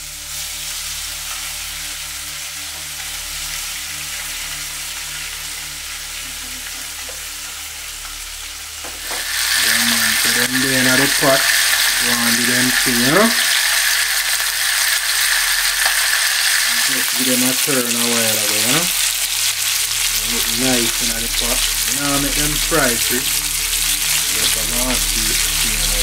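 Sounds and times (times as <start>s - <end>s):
fish sizzling in hot oil: 0.0s - 26.0s.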